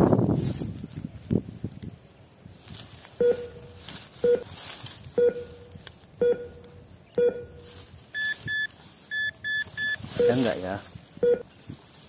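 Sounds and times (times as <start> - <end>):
short low electronic beeps: 3.2 - 4.5, 5.2 - 10.6, 11.2 - 11.5.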